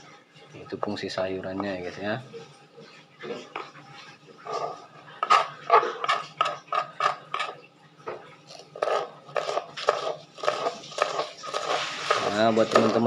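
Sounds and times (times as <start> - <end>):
knife chopping cabbage: 8.8 - 13.0.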